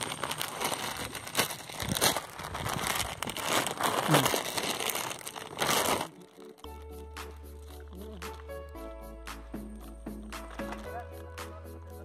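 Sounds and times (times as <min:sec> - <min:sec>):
net mesh rustling and crackling: 0:00.0 - 0:06.9.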